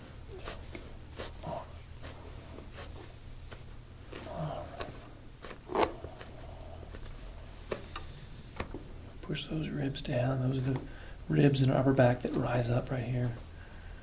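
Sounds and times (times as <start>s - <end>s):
hands rustling and clicking on skin: 2.0s - 8.9s.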